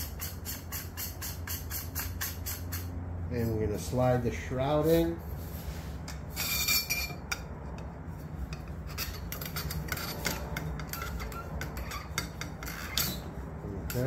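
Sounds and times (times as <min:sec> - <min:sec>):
metal scraping and clicking: 0:06.0 - 0:14.0.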